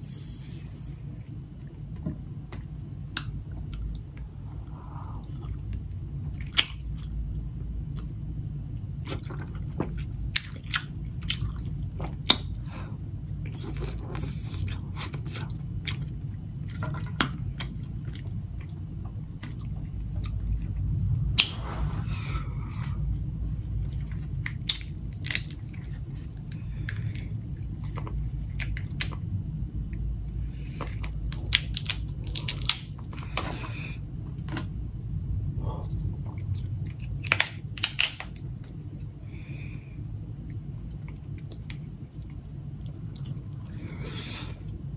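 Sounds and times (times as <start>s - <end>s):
steady low hum: 0.0s - 44.9s
chewing and lip-smacking: 9.0s - 20.8s, 40.5s - 44.8s
crab shell cracking: 24.6s - 25.6s, 31.4s - 32.9s, 37.2s - 38.5s.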